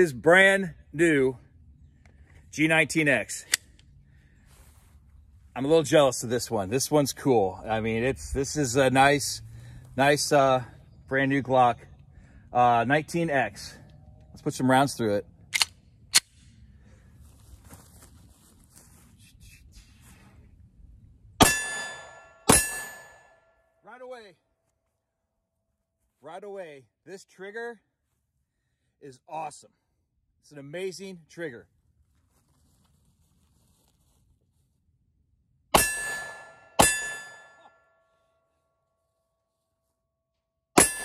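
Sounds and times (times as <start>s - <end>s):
steel target ringing: 21.4s - 23.5s, 35.8s - 37.9s, 40.8s - 41.0s.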